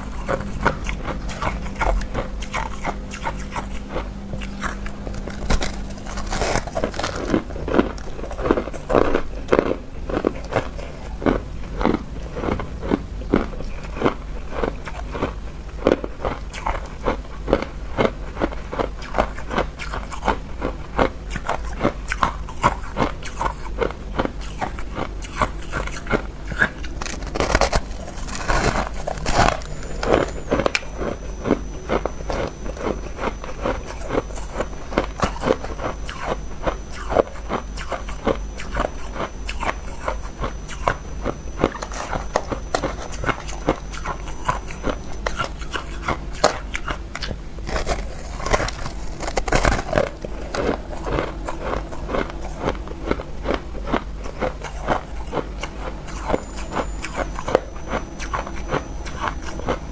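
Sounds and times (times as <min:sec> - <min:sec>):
person crunching ice: 0:04.4 - 0:16.6, 0:26.6 - 0:37.1, 0:46.4 - 0:54.0.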